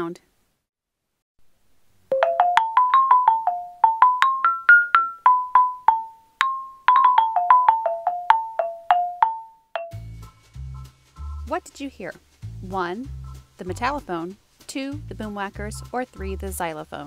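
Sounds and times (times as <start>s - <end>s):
xylophone tune: 2.1s - 10.2s.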